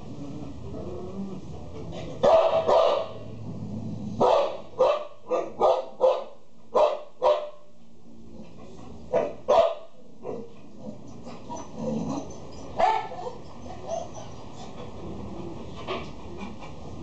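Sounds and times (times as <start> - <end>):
dog barking: 2.2 - 3.2, 4.2 - 7.6, 9.1 - 10.5, 12.8 - 13.3.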